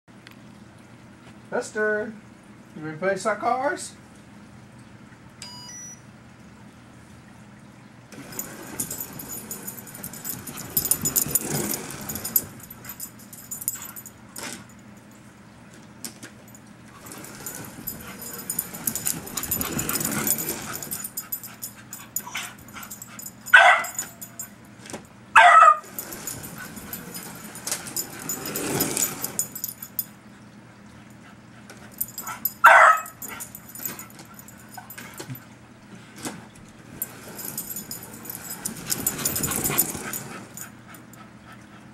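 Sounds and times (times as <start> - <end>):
dog barking: 23.5 - 24.4, 25.4 - 26.0, 32.3 - 33.2.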